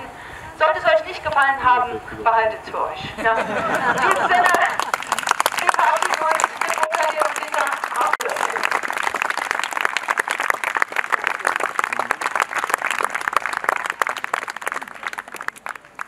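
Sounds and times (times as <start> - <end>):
audience applauding: 3.7 - 16.0.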